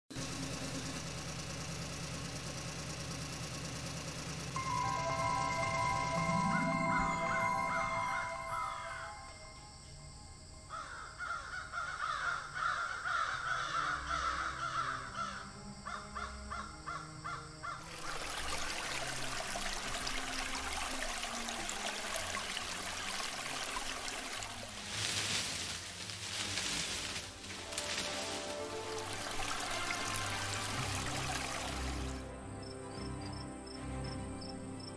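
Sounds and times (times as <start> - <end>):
soft background music: 4.6 - 11.1, 13.8 - 34.9
harsh cawing calls: 10.7 - 18.0
steady rushing hiss: 21.1 - 32.2.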